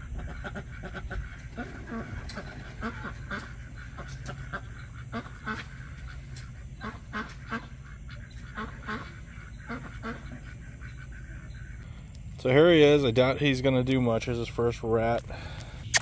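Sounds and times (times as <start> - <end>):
fowl honking calls: 0.0 - 12.3
low rumble: 0.0 - 12.7.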